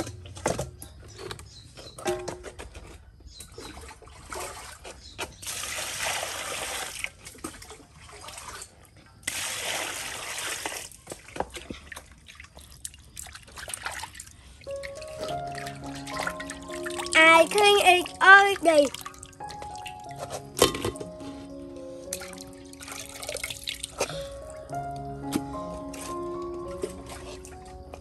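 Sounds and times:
water splashing and sloshing: 0:00.0 - 0:28.0
water pouring into metal basin: 0:12.2 - 0:24.8.

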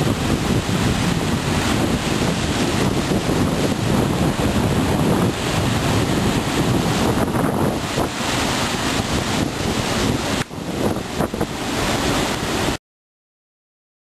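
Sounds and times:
surf breaking over rocks: 0:00.0 - 0:12.8
wind buffeting the microphone: 0:00.0 - 0:12.8.

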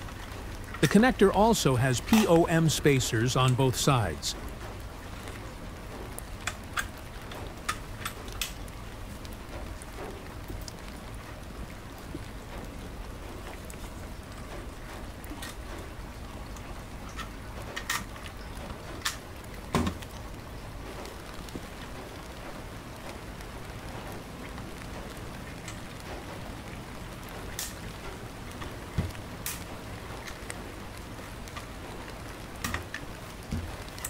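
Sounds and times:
steady hiss: 0:00.0 - 0:06.7
small parts clicking and tapping: 0:16.6 - 0:18.2.

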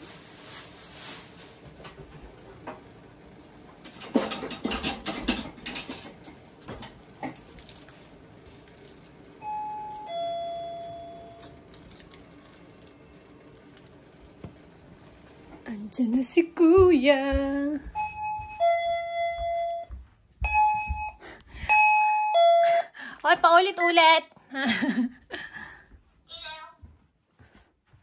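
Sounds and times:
metal kitchenware clattering: 0:03.8 - 0:07.8
two-tone doorbell chime: 0:09.4 - 0:11.7, 0:17.9 - 0:23.0.

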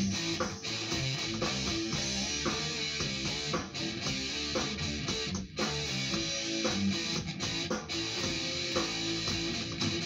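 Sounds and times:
electric guitar playing: 0:00.0 - 0:10.0.

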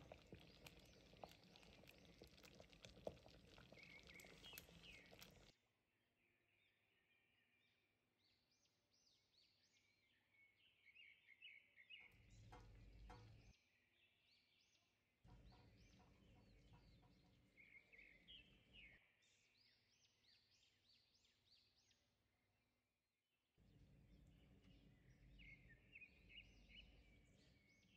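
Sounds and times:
small birds chirping: 0:00.0 - 0:05.5.

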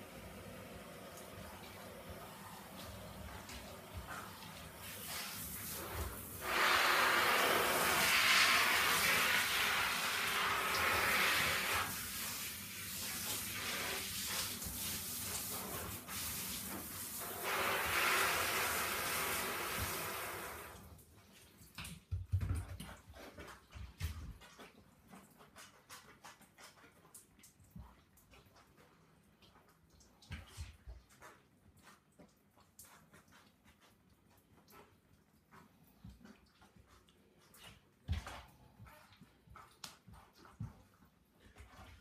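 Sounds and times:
shower spraying water: 0:00.0 - 0:21.0.

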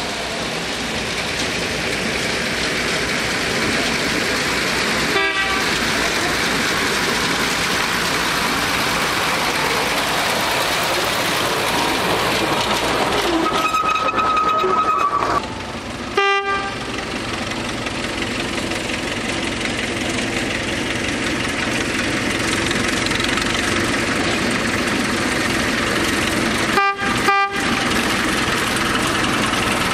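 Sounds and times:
diesel locomotive engine running: 0:00.0 - 0:29.9
train horn: 0:05.1 - 0:05.8, 0:16.2 - 0:16.9, 0:26.8 - 0:27.8.

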